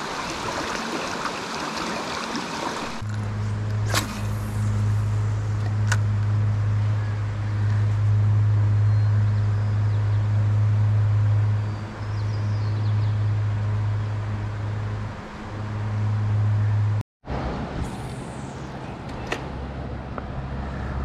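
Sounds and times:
flowing river water: 0:00.0 - 0:05.5
steady low hum: 0:03.0 - 0:21.0.

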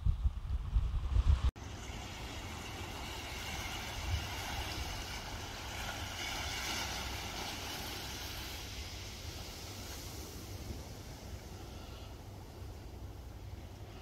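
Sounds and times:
rush of water and wind: 0:00.0 - 0:14.0
wind rumble on microphone: 0:00.0 - 0:14.0.

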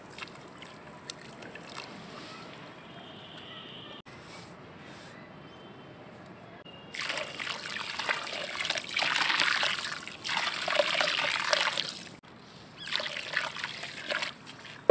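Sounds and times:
sand pouring into water: 0:07.0 - 0:12.2.

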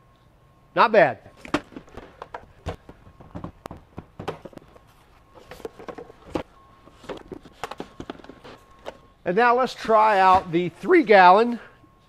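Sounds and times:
plastic vacuum hose knocks and clicks: 0:03.2 - 0:04.6.

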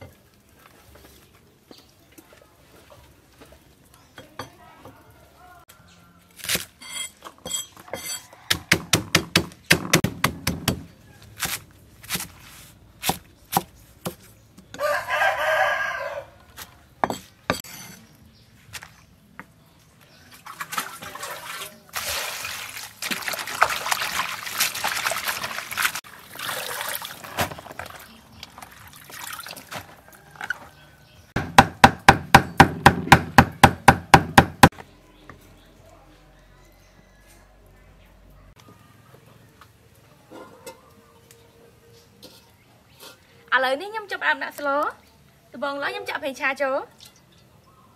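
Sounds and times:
rooster crowing: 0:07.9 - 0:09.0, 0:14.8 - 0:16.4
cleaver chopping on wooden block: 0:08.5 - 0:12.3, 0:31.4 - 0:34.7
greens rinsed in bowl of water: 0:20.3 - 0:30.3.

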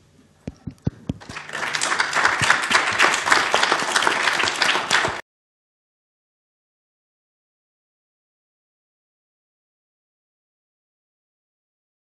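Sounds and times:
small audience applauding: 0:01.2 - 0:05.2.

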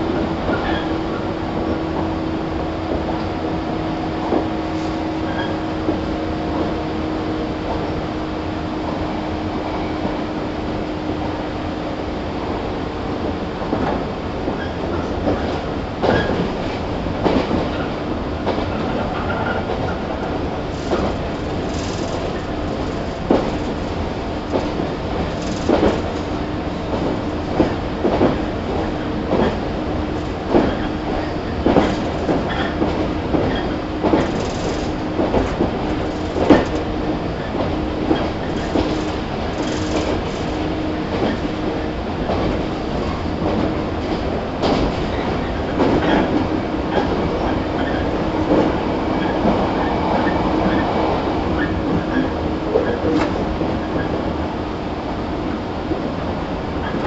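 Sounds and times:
train running hum: 0:00.0 - 0:57.0
train wheels rumbling: 0:00.0 - 0:57.0
wheels clicking over rail joints: 0:14.6 - 0:47.2.

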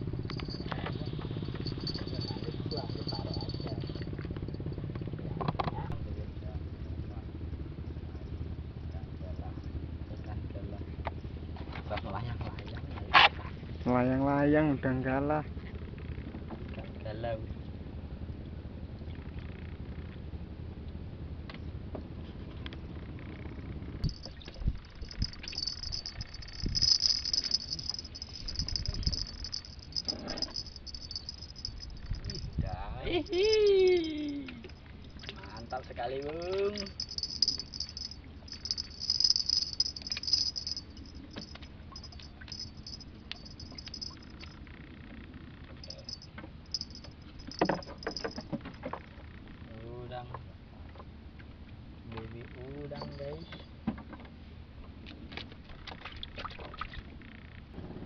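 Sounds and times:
fishing reel clicking and rattling: 0:01.6 - 0:03.9, 0:24.1 - 0:44.6, 0:45.8 - 0:48.4
insects trilling: 0:25.0 - 0:34.2, 0:36.7 - 0:44.5.

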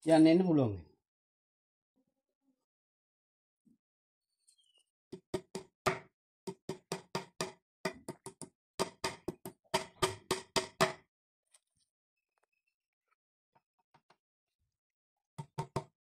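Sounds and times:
hammer tapping nail into wood: 0:05.2 - 0:11.0.

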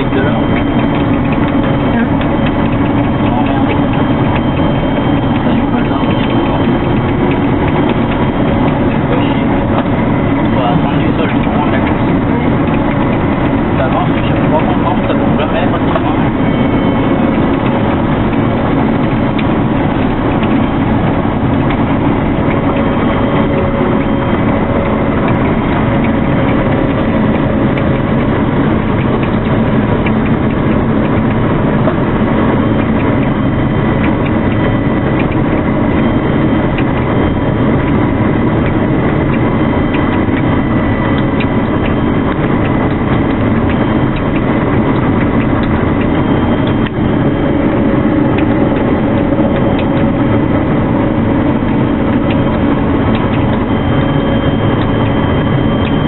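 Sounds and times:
combine harvester running: 0:00.0 - 0:56.0
faint steady whine: 0:00.0 - 0:56.0.

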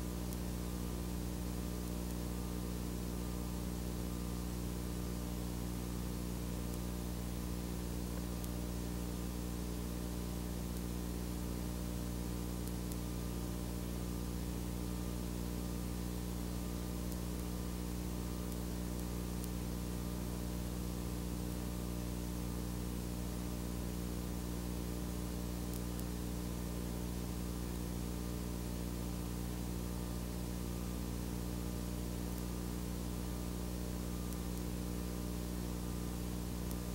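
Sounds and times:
constant hiss: 0:00.0 - 0:36.9
electrical mains hum: 0:00.0 - 0:36.9.

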